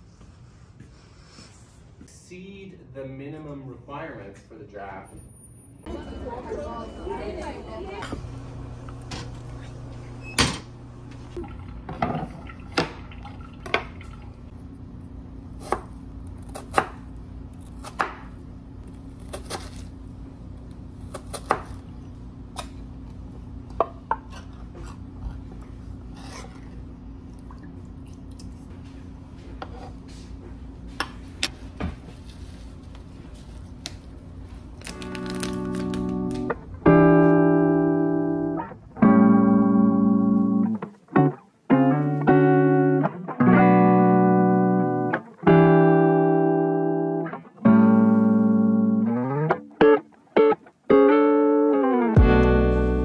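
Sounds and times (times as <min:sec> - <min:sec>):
steady low hum: 0:05.8 - 0:45.5, 0:52.2 - 0:53.0.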